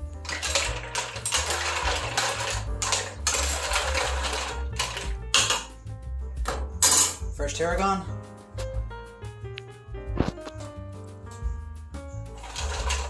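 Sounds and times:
mussels clattering in a steel pot: 0.0 - 5.8, 6.4 - 7.3, 12.4 - 13.0.

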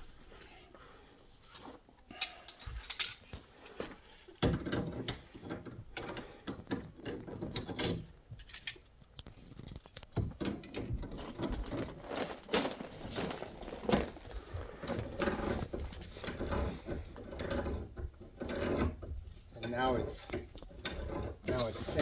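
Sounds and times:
metal clicks and scraping: 2.1 - 3.8, 4.4 - 12.0, 13.9 - 22.0.

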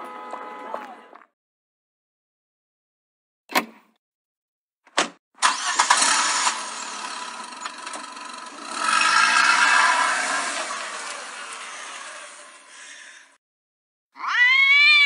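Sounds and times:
car engine starting and running: 5.4 - 13.3.

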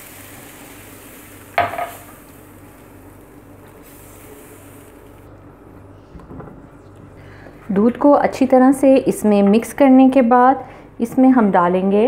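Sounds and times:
roux sizzling in a frying pan: 0.0 - 5.3.

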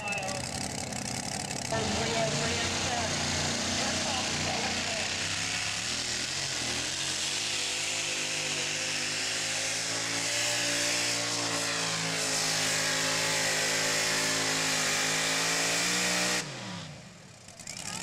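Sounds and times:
engine running at high revs: 0.0 - 18.0.

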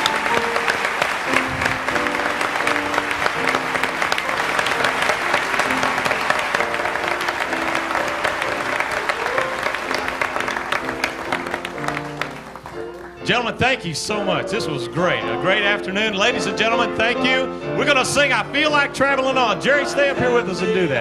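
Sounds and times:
audience applauding: 0.0 - 13.6
instrumental music: 0.0 - 21.0.

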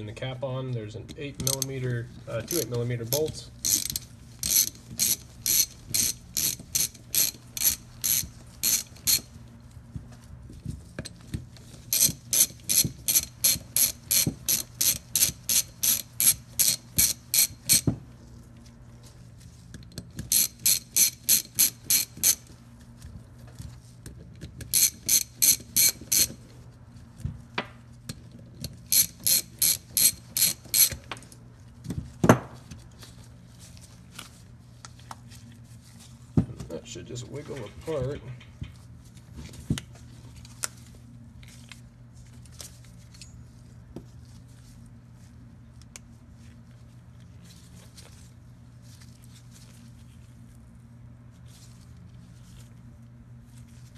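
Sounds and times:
socket ratchet clicking: 1.4 - 1.7, 3.6 - 9.3, 11.9 - 17.8, 20.3 - 22.4, 24.6 - 26.3, 28.9 - 31.0.

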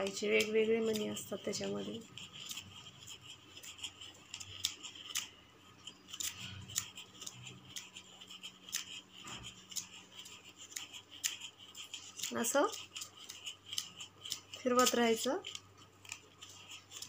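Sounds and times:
thread scraping over cardboard: 0.0 - 17.0.

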